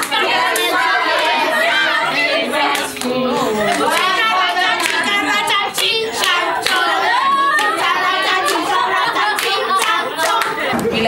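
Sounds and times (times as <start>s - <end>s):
group of voices singing: 0.0s - 11.0s
hands clapping: 2.7s - 6.9s, 7.5s - 11.0s.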